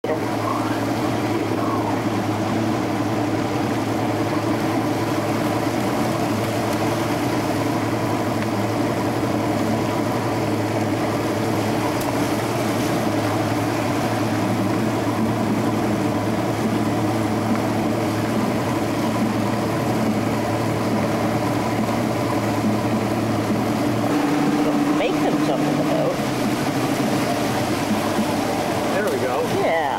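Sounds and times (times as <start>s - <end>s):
outboard motor droning: 0.0s - 29.9s
water rushing from wake: 0.0s - 29.9s.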